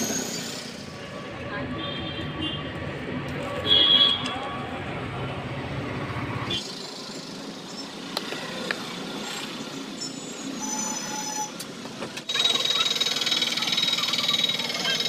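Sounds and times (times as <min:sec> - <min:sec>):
street traffic noise: 0:00.0 - 0:15.0.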